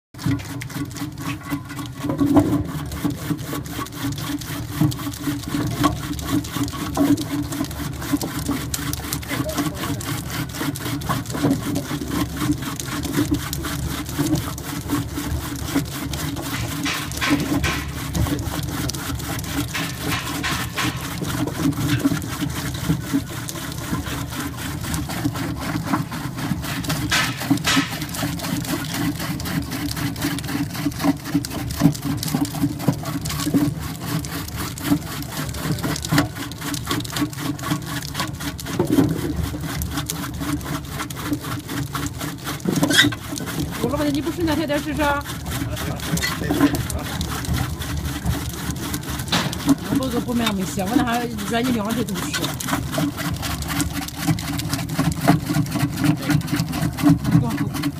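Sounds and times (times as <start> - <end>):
rotary blades chattering: 0.4 - 57.9
sharp clatters: 16.5 - 18.5, 19.5 - 22.2, 26.6 - 28.8.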